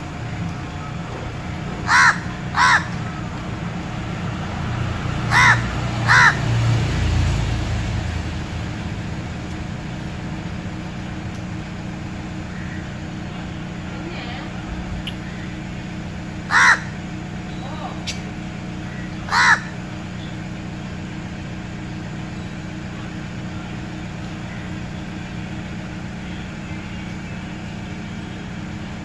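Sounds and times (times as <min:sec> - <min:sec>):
crow cawing: 0:01.8 - 0:03.1, 0:05.2 - 0:06.6, 0:12.5 - 0:13.0, 0:16.4 - 0:17.1, 0:18.8 - 0:19.9.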